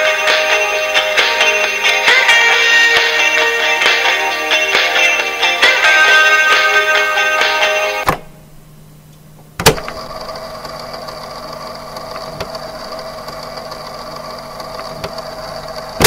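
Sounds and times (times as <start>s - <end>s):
tape hiss: 0.0s - 16.0s
tape transport motor whir: 9.7s - 16.0s.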